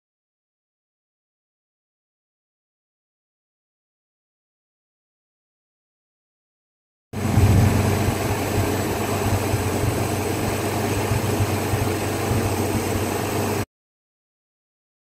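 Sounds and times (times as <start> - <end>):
tractor engine running: 7.2 - 13.6.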